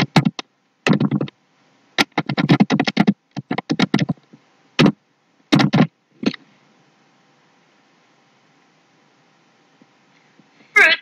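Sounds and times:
computer keyboard typing: 0.0 - 1.3, 2.0 - 4.2, 5.6 - 5.9.

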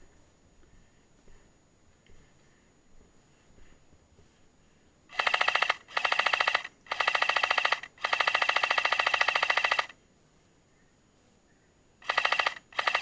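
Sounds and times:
airsoft gun firing bursts: 5.1 - 10.0, 12.0 - 13.0.

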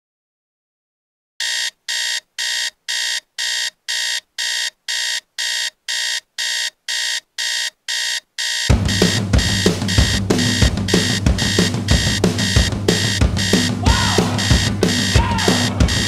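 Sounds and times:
phone alarm beeping: 1.4 - 16.0.

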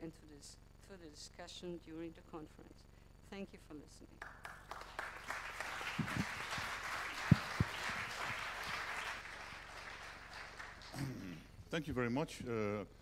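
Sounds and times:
audience applauding: 4.2 - 11.1.

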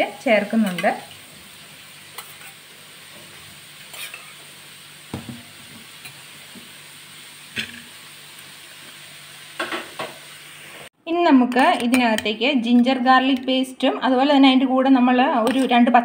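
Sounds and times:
background hiss: 1.0 - 10.9.

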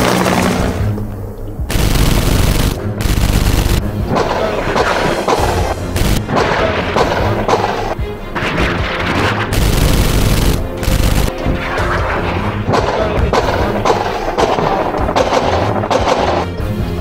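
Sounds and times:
background music: 0.0 - 17.0
gunfire bursts: 1.7 - 12.0, 12.7 - 16.6
booms: 11.3 - 16.5.

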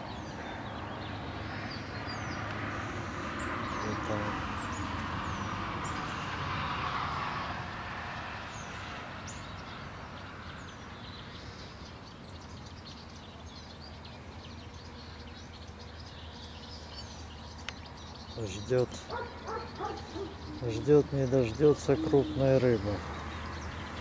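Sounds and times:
outdoor background noise: 0.0 - 24.0
small birds chirping: 0.0 - 24.0.

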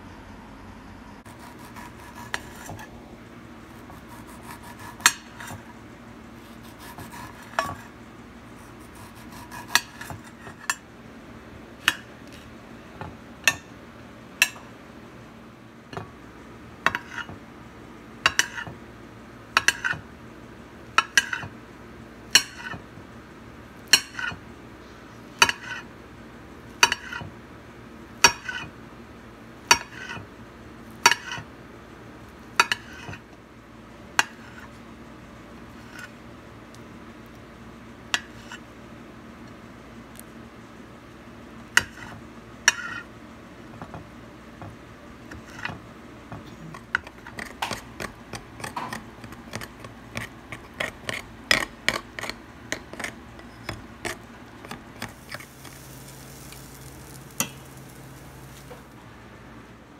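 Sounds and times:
knife slicing fruit: 1.2 - 3.0, 3.7 - 5.7, 6.4 - 7.9, 8.6 - 10.6.

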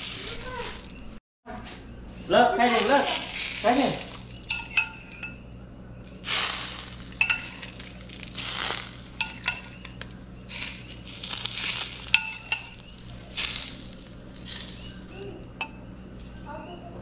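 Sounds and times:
hot oil sizzling: 0.0 - 1.0, 2.7 - 5.2, 6.1 - 15.1
metal spoon clinking on pot: 4.0 - 5.4, 7.2 - 7.8, 9.2 - 10.1, 11.7 - 12.9, 15.6 - 15.9.

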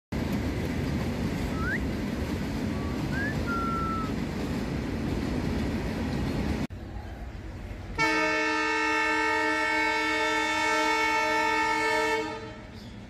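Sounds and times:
thin whistle-like notes: 1.5 - 1.9, 2.7 - 4.1.

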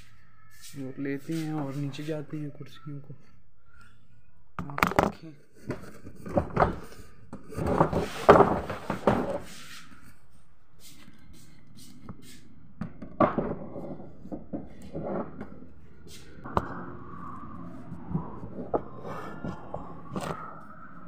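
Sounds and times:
handling noise and bumps: 4.6 - 9.6.

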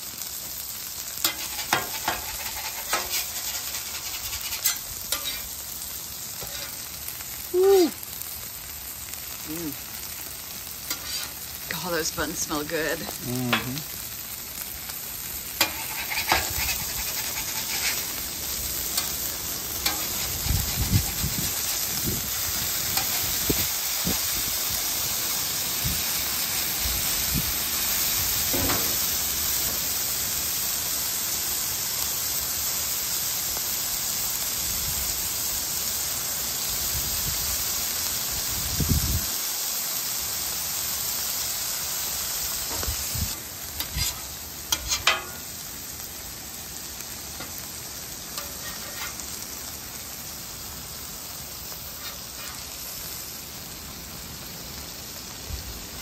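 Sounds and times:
burger patties sizzling on griddle: 0.0 - 56.0
metal spatula scraping: 1.2 - 5.6, 6.4 - 6.9, 10.9 - 11.4, 15.6 - 21.9, 43.8 - 45.5, 48.2 - 49.4, 51.9 - 52.8.

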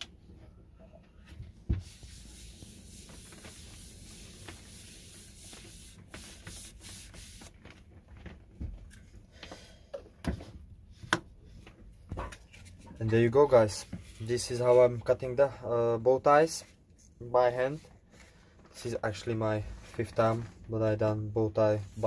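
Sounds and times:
cloth scrubbing wood: 1.7 - 7.6.

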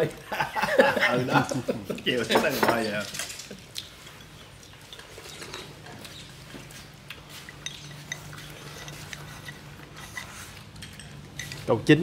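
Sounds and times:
chopsticks tapping porcelain bowls: 1.5 - 6.2, 7.1 - 11.7.

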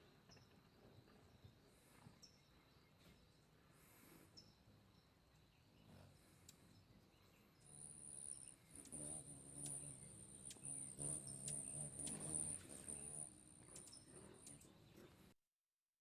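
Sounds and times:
cricket chirping: 0.0 - 15.1
light ticks: 6.4 - 6.6, 13.6 - 14.7.

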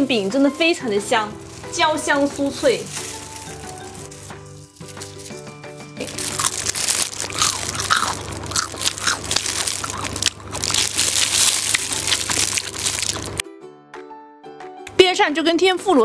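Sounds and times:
crunching fried pancake: 2.9 - 13.4.

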